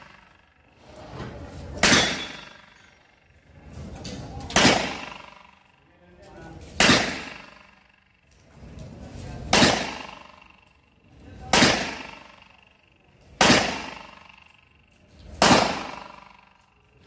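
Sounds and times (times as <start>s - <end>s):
pistol shots: 1.8s - 3.2s, 4.4s - 5.7s, 6.6s - 8.0s, 9.5s - 10.6s, 11.5s - 12.6s, 13.2s - 14.6s, 15.3s - 16.6s.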